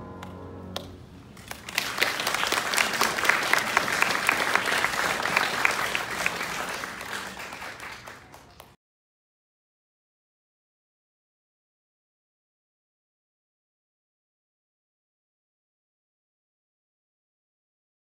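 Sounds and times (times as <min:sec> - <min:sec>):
piano chord: 0:00.0 - 0:01.1
audience applause: 0:01.4 - 0:08.8.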